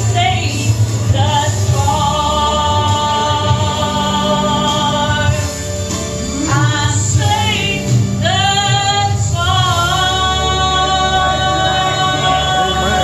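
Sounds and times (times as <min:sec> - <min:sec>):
gospel music with bass: 0:00.0 - 0:13.0
person singing: 0:06.5 - 0:13.0.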